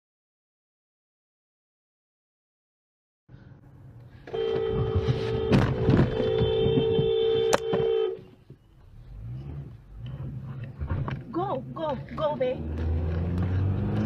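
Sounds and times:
road and engine noise: 0:03.3 - 0:14.0
car horn blaring: 0:04.3 - 0:08.3.

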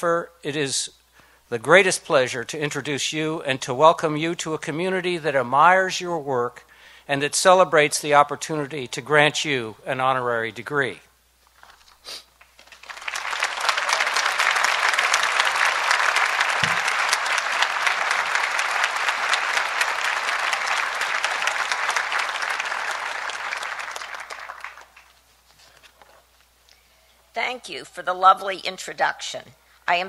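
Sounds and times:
audience applauding: 0:12.4 - 0:25.3.

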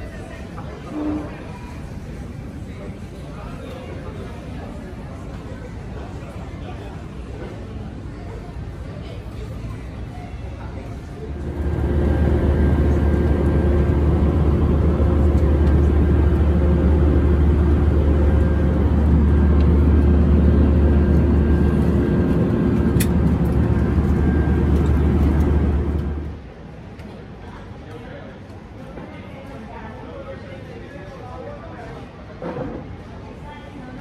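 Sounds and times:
jet engine cabin drone: 0:10.7 - 0:26.6
faint whining tones: 0:11.3 - 0:26.4.

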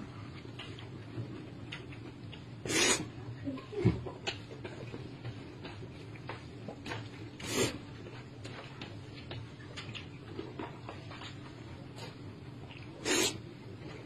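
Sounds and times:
low steady hum: 0:00.0 - 0:14.0
man slurping noodles: 0:02.7 - 0:03.1, 0:13.0 - 0:13.4
chewing: 0:03.6 - 0:13.0.

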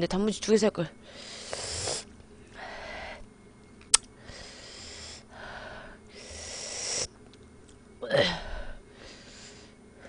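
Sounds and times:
person breathing hard: 0:02.6 - 0:03.2, 0:04.2 - 0:07.1, 0:08.2 - 0:10.0.

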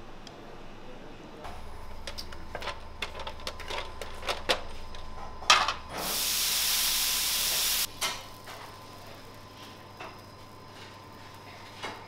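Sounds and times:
batter sizzling on hot plate: 0:05.9 - 0:12.0.

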